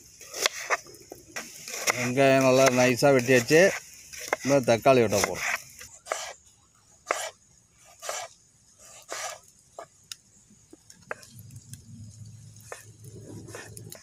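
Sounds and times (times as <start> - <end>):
knife slicing tomatoes on board: 7.1 - 7.4.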